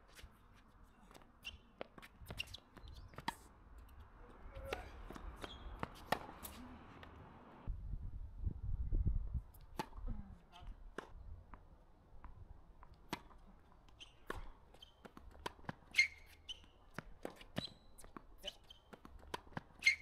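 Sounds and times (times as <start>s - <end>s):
footsteps and taps on hard court: 0.1s - 4.0s, 4.6s - 7.2s, 12.2s - 19.8s.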